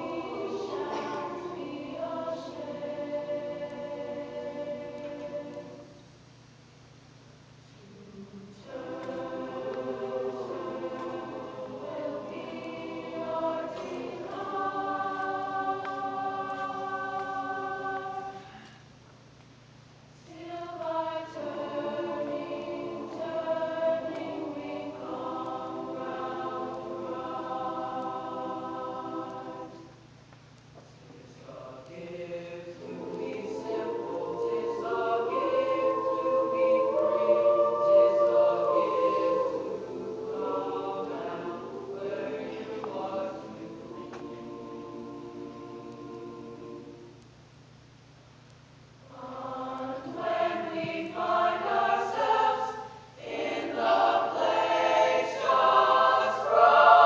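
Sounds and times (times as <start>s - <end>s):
choir singing sustained chords: 0.0s - 6.4s, 7.8s - 18.9s, 20.2s - 30.2s, 31.0s - 47.8s, 48.9s - 57.0s.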